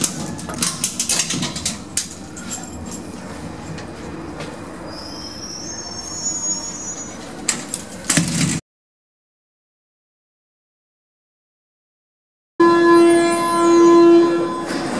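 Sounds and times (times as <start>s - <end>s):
metal door clicks and rattles: 0.0s - 2.2s
thin high squeal: 4.9s - 7.3s.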